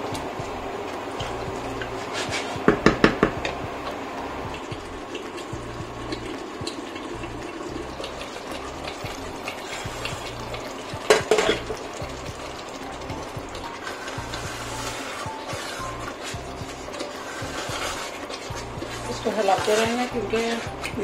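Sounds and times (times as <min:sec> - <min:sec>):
curry simmering in a pot: 0:00.0 - 0:21.0
wooden spoon knocking: 0:02.2 - 0:04.9, 0:10.2 - 0:13.7.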